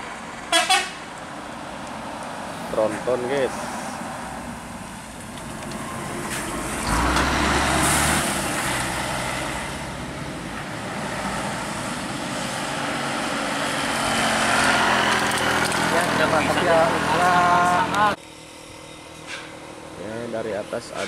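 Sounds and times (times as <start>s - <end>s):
bus diesel engine passing: 0.0s - 21.0s
car going by: 0.0s - 21.0s.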